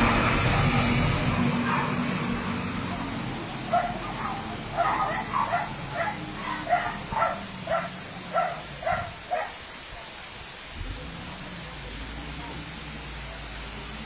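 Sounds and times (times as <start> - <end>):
dog barking: 1.3 - 2.1, 3.7 - 9.6.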